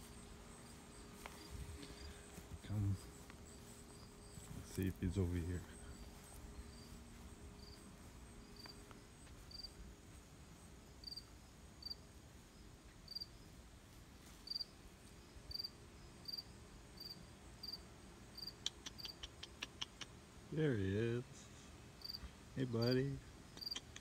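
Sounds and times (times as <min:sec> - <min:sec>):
small animal chirping: 0:18.4 - 0:20.2, 0:23.5 - 0:24.0.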